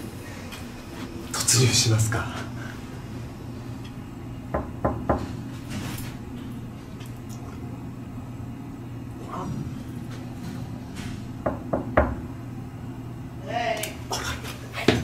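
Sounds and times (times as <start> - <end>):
steady low hum: 0.0 - 15.0
knocks on a door: 4.5 - 5.3, 11.4 - 12.2.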